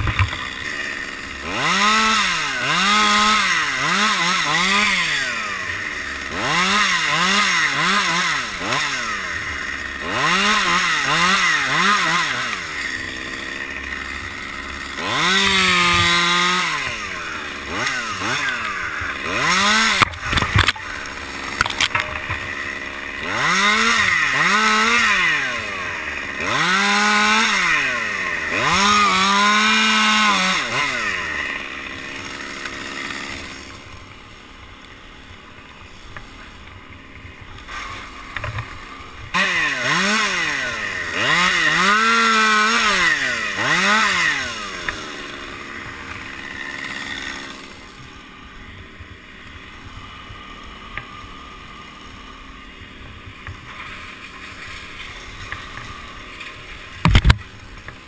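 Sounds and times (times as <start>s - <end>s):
chainsaw revving and idling: 0.0s - 58.0s.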